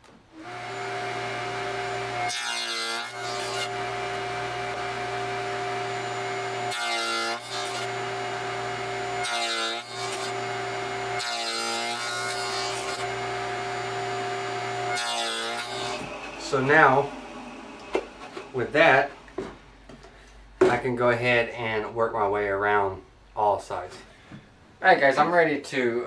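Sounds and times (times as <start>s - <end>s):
saw cutting wood: 0.4s - 19.2s
table saw running: 0.4s - 19.4s.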